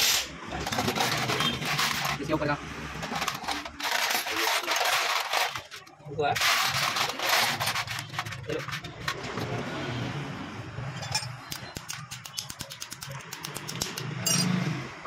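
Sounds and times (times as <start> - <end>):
metal parts handled: 0.2 - 2.4, 3.0 - 9.2, 11.0 - 14.5.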